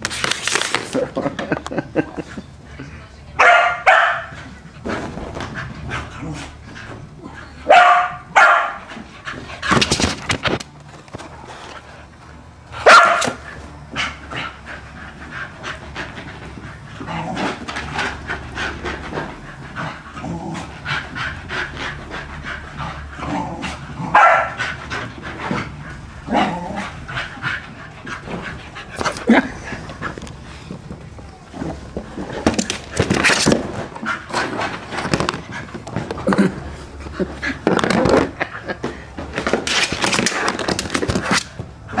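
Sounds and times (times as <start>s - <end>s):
dog barking: 3.4s - 4.3s, 7.7s - 8.8s, 12.8s - 13.4s, 24.2s - 24.6s.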